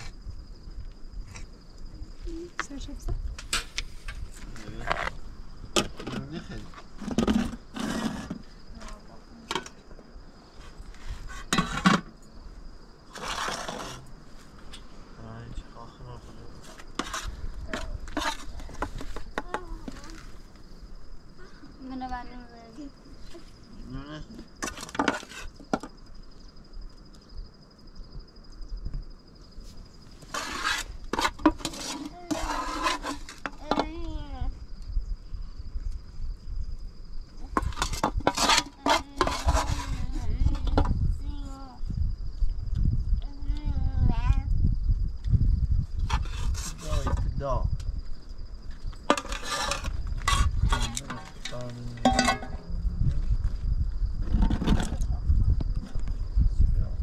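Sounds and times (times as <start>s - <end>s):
crickets chirring: 0.0s - 57.0s
metal spoon scraping a pan: 17.0s - 19.1s, 30.3s - 33.8s, 37.6s - 40.6s, 49.1s - 52.6s
metal spoon and pots clinking: 49.1s - 52.6s
metal clatter: 49.1s - 52.7s.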